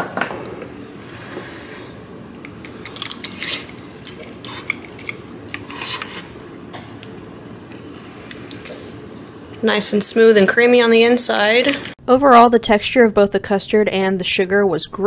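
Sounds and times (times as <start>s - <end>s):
spoon scraping ceramic ramekin: 3.0s - 6.4s.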